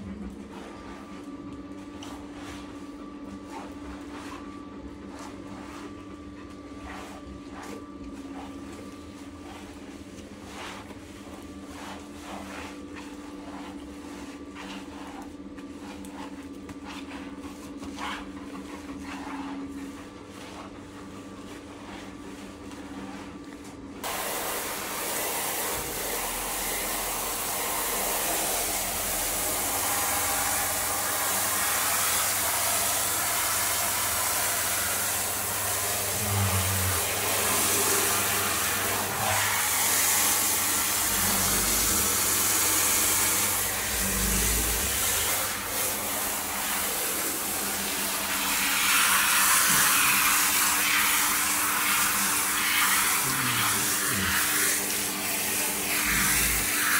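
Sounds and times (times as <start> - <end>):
soft rubbing strokes: 0.3 - 24.1
shower spray hissing: 24.0 - 56.9.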